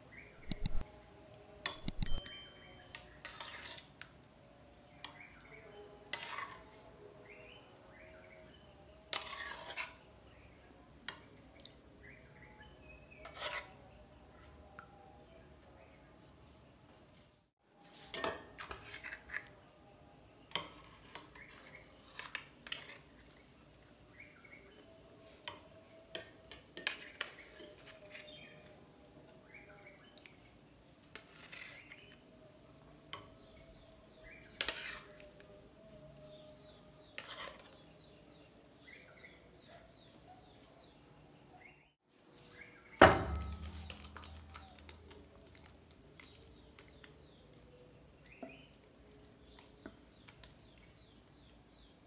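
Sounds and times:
metal spoon clinking on glass bowl: 0:01.6 - 0:03.2, 0:25.5 - 0:27.9.

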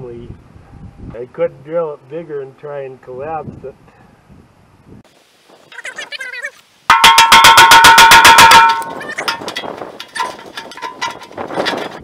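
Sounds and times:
impact tool hammering metal: 0:06.9 - 0:11.3
soft metallic clatter: 0:06.9 - 0:12.0.

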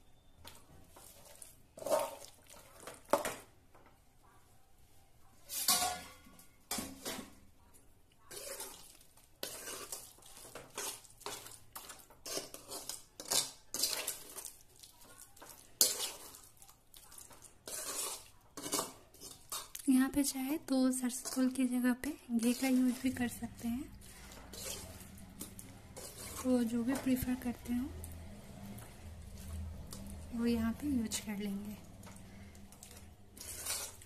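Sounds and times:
spoon scraping and clinking on pan: 0:01.0 - 0:03.4, 0:05.5 - 0:07.3, 0:08.3 - 0:14.6, 0:15.8 - 0:16.4, 0:17.3 - 0:19.8, 0:21.1 - 0:21.6, 0:24.0 - 0:27.6, 0:32.8 - 0:34.0.

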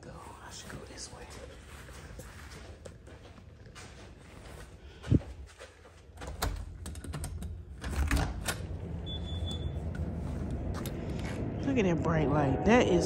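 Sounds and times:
low rumble: 0:07.5 - 0:13.0.

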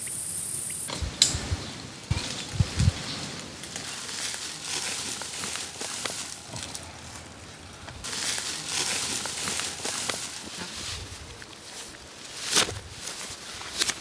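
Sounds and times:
twigs and leaves rustling: 0:00.9 - 0:14.0.

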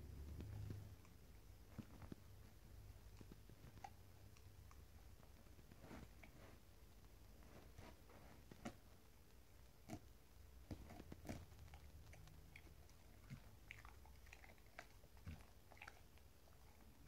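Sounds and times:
dog chewing rope toy: 0:09.8 - 0:17.0.

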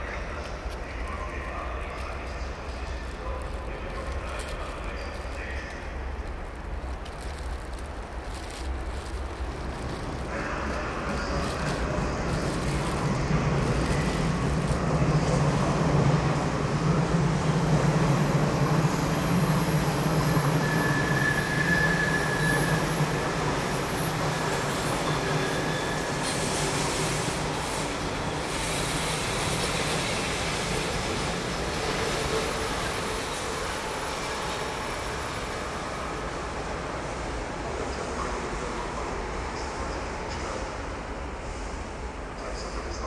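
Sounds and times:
train wheels rumbling on rails: 0:00.0 - 0:43.0
wheel squeal: 0:20.4 - 0:23.0.

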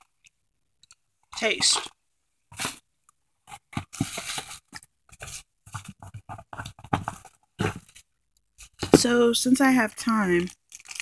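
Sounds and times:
snack packaging rustling: 0:09.8 - 0:11.0.

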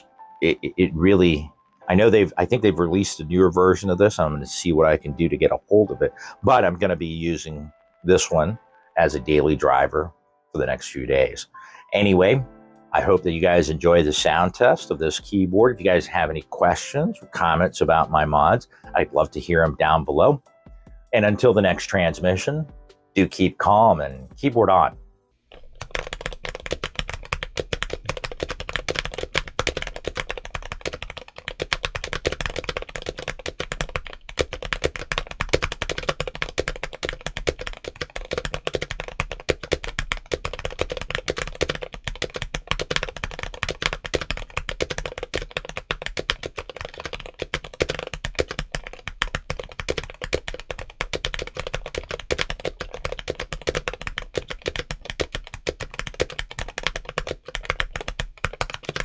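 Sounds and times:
fast typing on mechanical keyboard: 0:13.0 - 0:14.7, 0:25.5 - 0:59.0.

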